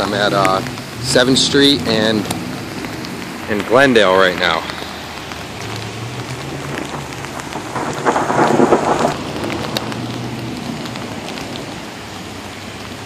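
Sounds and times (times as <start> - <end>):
sleet pattering on pavement: 0.0 - 13.0
rushing noise: 1.8 - 11.2
ice pellets ticking: 2.9 - 9.9.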